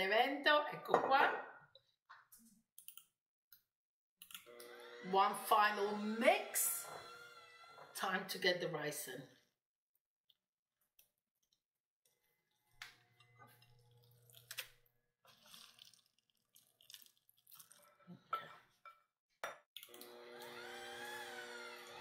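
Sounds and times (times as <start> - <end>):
hand mixer running: 4.5 - 8.4, 19.9 - 22.0
wet plops of rice into batter: 15.3 - 17.8.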